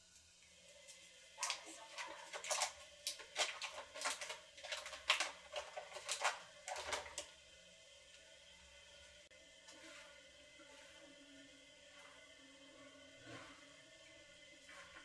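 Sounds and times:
paper wrapper crinkling: 0:01.4 - 0:07.2.

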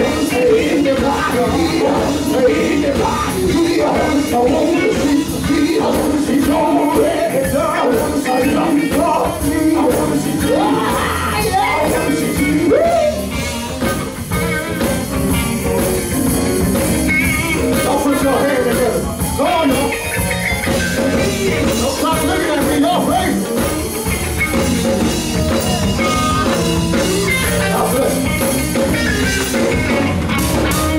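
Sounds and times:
people singing: 0:00.0 - 0:13.3, 0:20.7 - 0:23.1
gospel band playing: 0:00.0 - 0:30.9.

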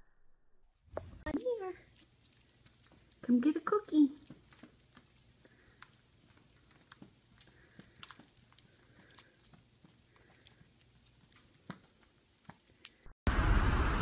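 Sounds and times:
dog paws tapping on carpet: 0:01.0 - 0:12.8
outdoor street noise: 0:13.3 - 0:14.0.

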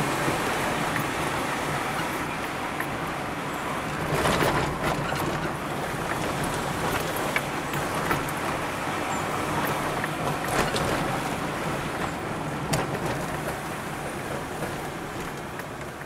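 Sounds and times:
engine and tyre rumble: 0:00.0 - 0:16.0.

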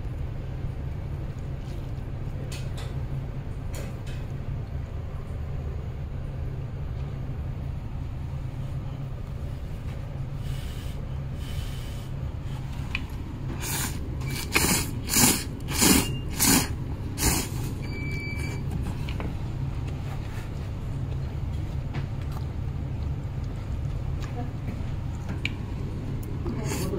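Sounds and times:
steady low hum: 0:00.0 - 0:26.9
noodles being slurped: 0:11.4 - 0:17.8.

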